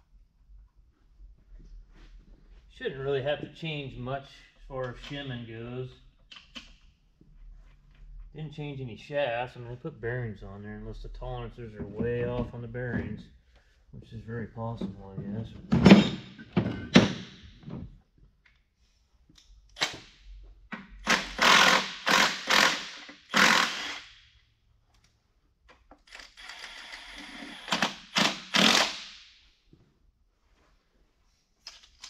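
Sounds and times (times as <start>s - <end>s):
air impact wrench bursts: 21.0s - 24.3s, 26.4s - 29.3s.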